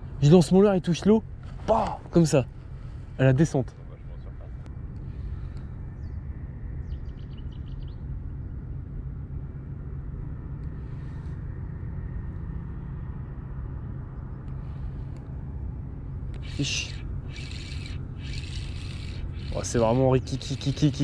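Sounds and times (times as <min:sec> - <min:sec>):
low outdoor rumble: 0:00.0 - 0:21.0
bird chirping: 0:06.8 - 0:08.1.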